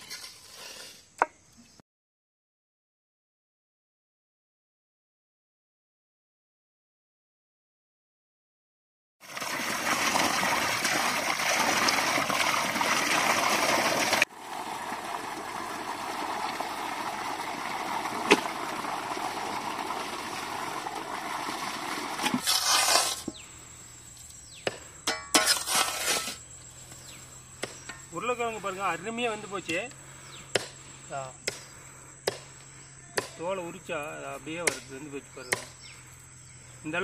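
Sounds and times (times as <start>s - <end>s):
water pouring into a pot: 9.2s - 22.5s.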